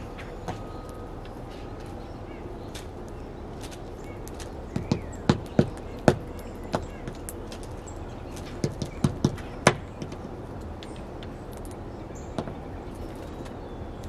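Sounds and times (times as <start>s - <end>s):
woodpecker tapping on wood: 4.2s - 12.7s.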